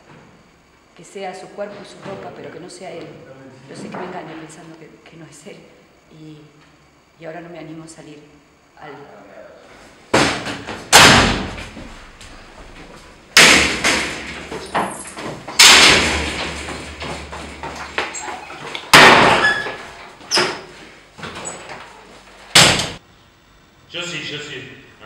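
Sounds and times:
heavy bangs on a door: 0:10.1 - 0:12.0, 0:13.4 - 0:19.9, 0:22.5 - 0:23.0.

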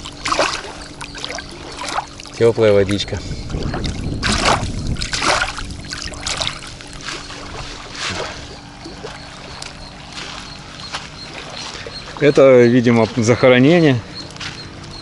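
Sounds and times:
water lapping at shore: 0:00.0 - 0:15.0
low rumble: 0:02.9 - 0:12.2.

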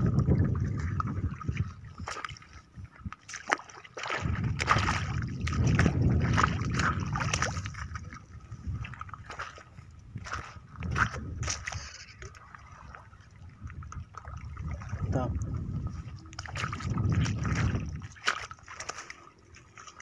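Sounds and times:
low rumble: 0:00.0 - 0:01.5
shallow water sloshing: 0:00.0 - 0:20.0.

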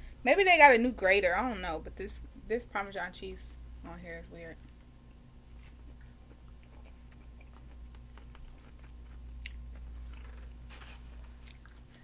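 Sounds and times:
person chewing: 0:05.5 - 0:12.0.

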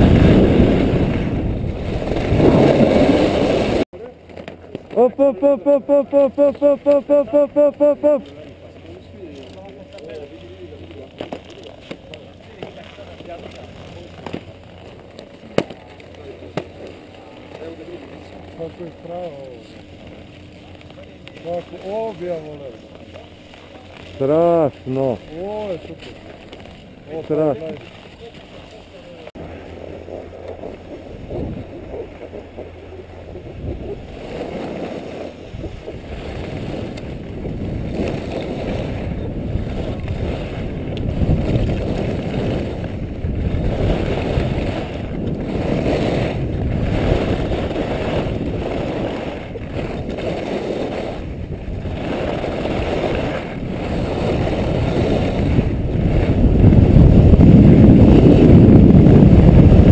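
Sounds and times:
skis rushing on packed snow: 0:00.0 - 0:03.8, 0:04.4 - 0:59.9
wind buffeting microphone: 0:00.0 - 0:03.8, 0:30.3 - 0:59.9.

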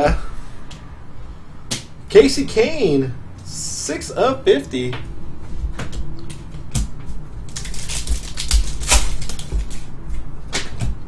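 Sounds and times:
foil pack crinkling and tearing: 0:07.5 - 0:09.9.

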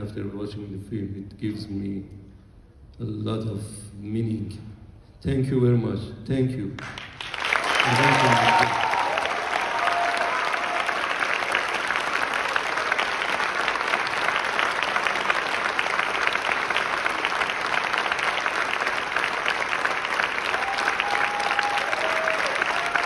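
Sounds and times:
large audience clapping: 0:06.8 - 0:23.0.

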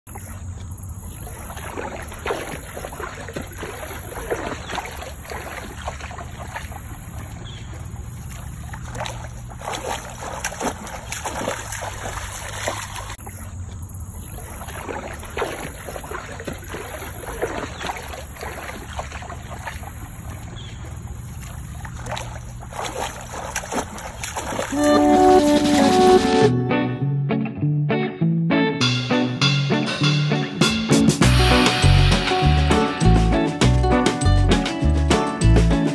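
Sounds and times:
dog splashing in water: 0:00.1 - 0:25.9.

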